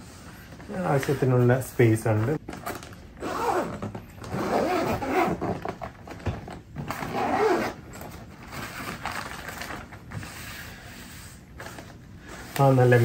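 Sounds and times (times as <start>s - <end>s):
zipper rasping: 3.2s - 6.0s, 6.8s - 9.0s.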